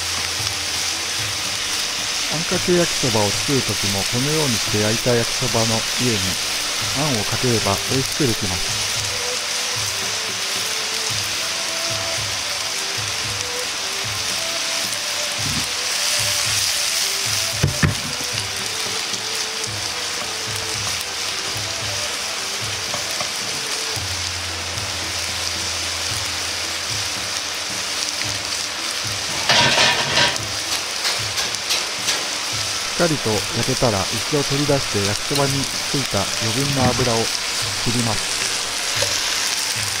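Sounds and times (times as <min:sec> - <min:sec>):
noodles sizzling in frying pan: 0:00.0 - 0:40.0.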